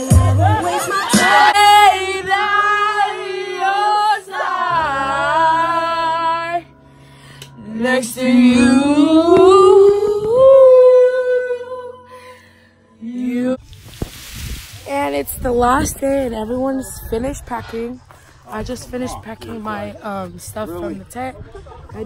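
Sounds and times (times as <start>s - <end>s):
girl singing long notes: 7.6s - 12.4s.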